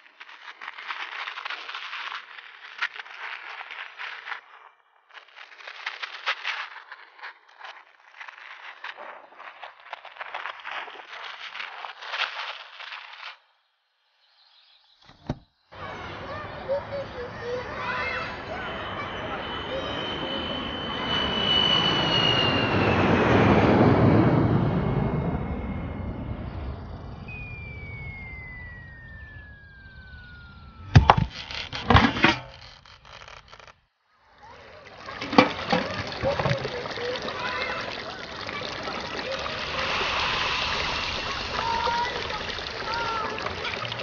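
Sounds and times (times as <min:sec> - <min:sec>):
cartoon crackling rustle: 0:00.0 - 0:13.7, 0:29.5 - 0:35.2
cartoon falling whistle: 0:15.8 - 0:32.0
airplane engine rumble: 0:15.8 - 0:33.5, 0:34.4 - 0:44.0
short pop: 0:30.8 - 0:32.4.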